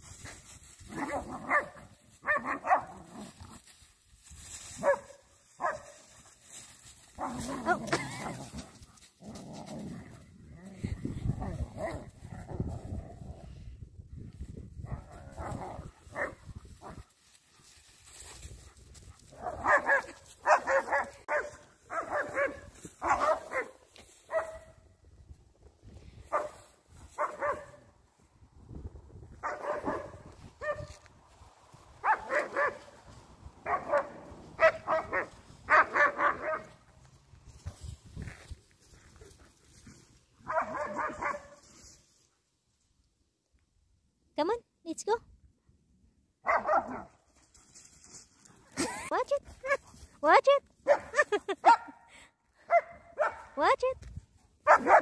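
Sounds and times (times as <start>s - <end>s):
dogs barking in play: 0.8s - 3.6s, 4.7s - 6.3s, 7.1s - 10.2s, 14.8s - 17.1s, 19.0s - 24.8s, 26.3s - 27.9s, 29.4s - 31.0s, 31.9s - 37.0s, 40.4s - 41.6s, 46.4s - 47.2s, 50.8s - 53.7s, 54.6s - 55.0s.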